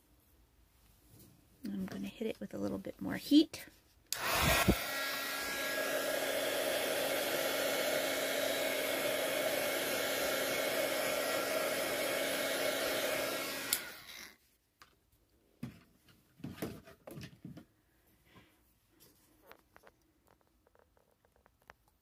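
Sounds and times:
heat gun blowing: 0:04.1 - 0:14.4
heat gun switch click: 0:13.7 - 0:13.9.

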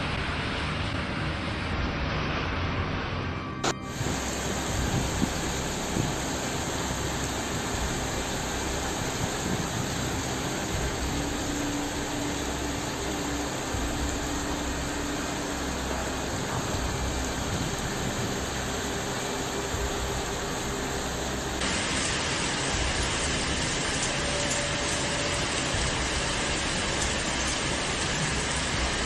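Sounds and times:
steady rushing noise: 0:00.0 - 0:29.0.

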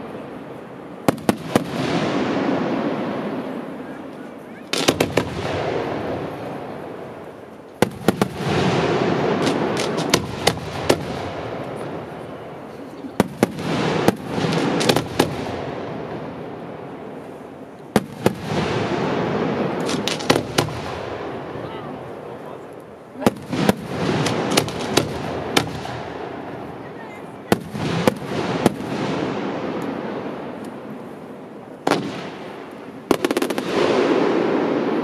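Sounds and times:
firework shells bursting: 0:04.7 - 0:06.4, 0:07.2 - 0:12.1, 0:13.2 - 0:15.7, 0:17.8 - 0:21.5, 0:22.7 - 0:26.6, 0:31.8 - 0:35.0.

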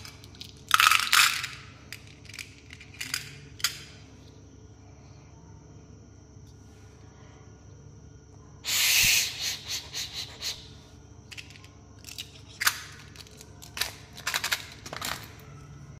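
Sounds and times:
candies rattling in plastic container: 0:11.3 - 0:15.4.

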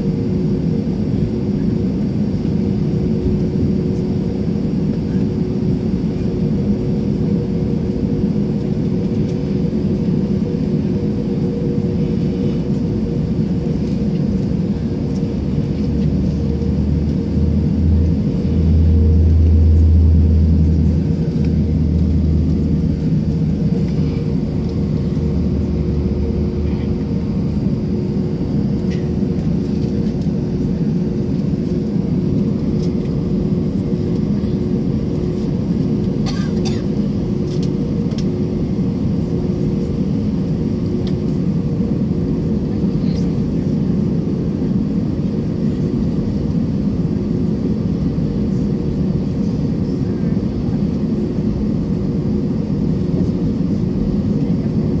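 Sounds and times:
jet cabin rumble and hum: 0:00.0 - 0:55.0
deep drone: 0:12.0 - 0:33.8.

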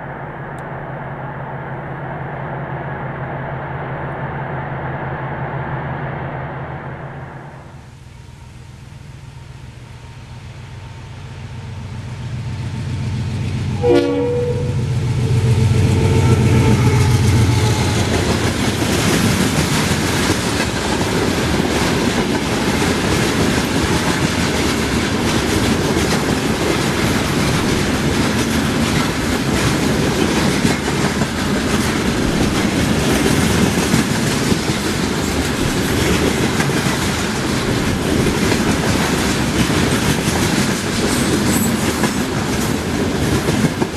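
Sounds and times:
diesel locomotive engine rumble: 0:00.0 - 0:43.9
locomotive horn: 0:13.8 - 0:18.4
train wheels clattering on track: 0:15.9 - 0:43.9.

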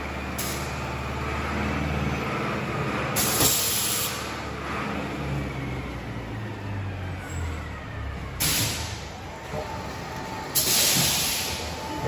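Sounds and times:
compressed air hiss: 0:10.6 - 0:11.6.

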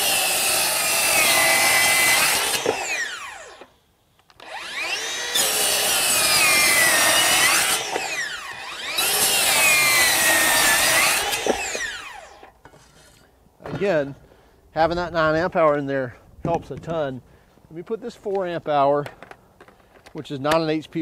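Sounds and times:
circular saw cutting wood: 0:00.0 - 0:03.7, 0:04.4 - 0:13.3
saw motor spinning down: 0:00.0 - 0:03.7, 0:04.4 - 0:12.5.

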